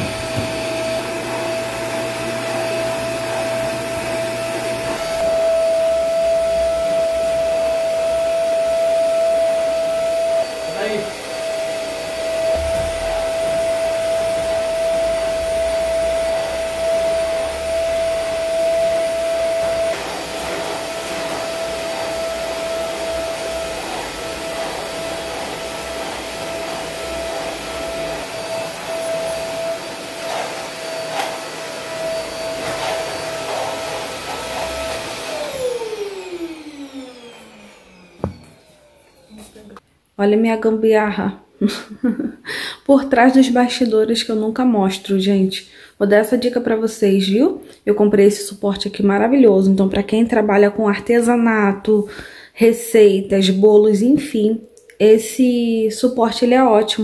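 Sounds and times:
electric motor whining: 9.4s - 39.6s.

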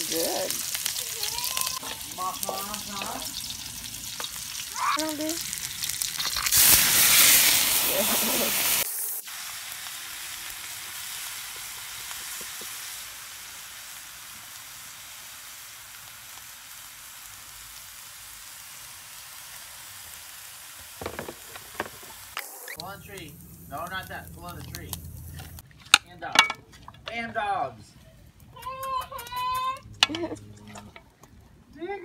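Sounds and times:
loud sizzling of poured liquid: 0.0s - 24.2s
food sizzling in a wok: 0.0s - 25.6s.

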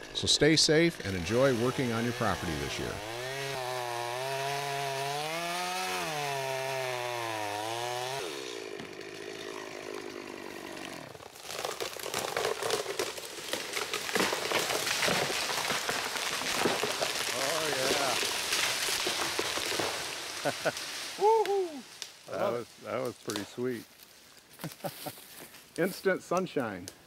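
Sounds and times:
chainsaw cutting wood: 0.8s - 21.2s
tree crashing through branches: 11.0s - 22.3s.

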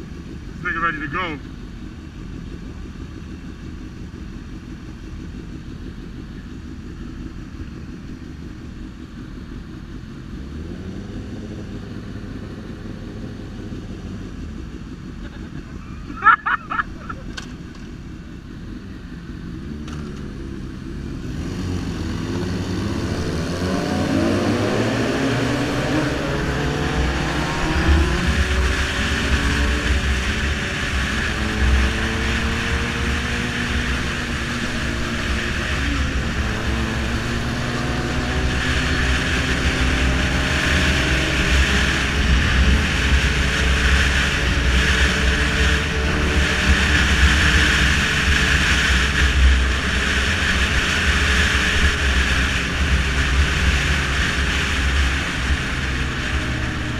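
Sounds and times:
motorcycle engine accelerating: 0.0s - 56.9s
wind rushing over microphone: 21.3s - 56.9s.

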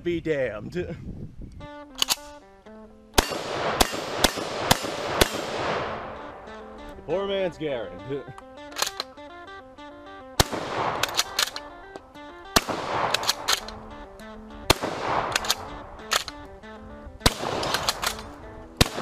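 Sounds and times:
background music: 1.6s - 19.0s
gun action clicking: 1.9s - 5.4s, 8.3s - 9.3s, 10.4s - 19.0s
shotgun shots echoing: 3.2s - 7.0s, 10.3s - 19.0s.

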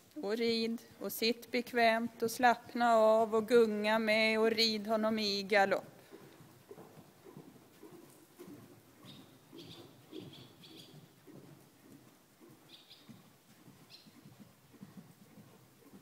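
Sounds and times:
horse hoofbeats cantering: 5.0s - 16.0s
small birds chirping: 6.1s - 16.0s.

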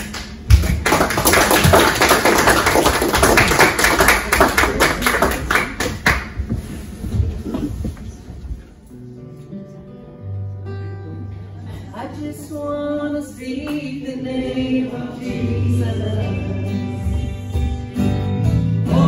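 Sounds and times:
congregation applauding: 0.0s - 6.4s.

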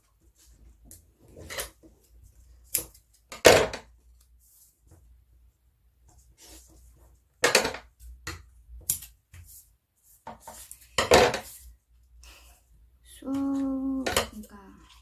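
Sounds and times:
paper and tape rustling: 8.9s - 11.8s.

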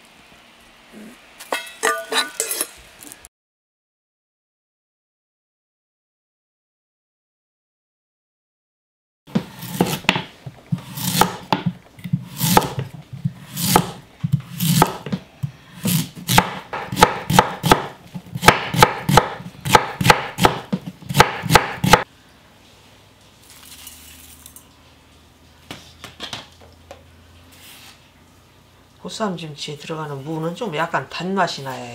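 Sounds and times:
knife cutting radish on wooden board: 9.3s - 15.2s, 15.8s - 22.0s.

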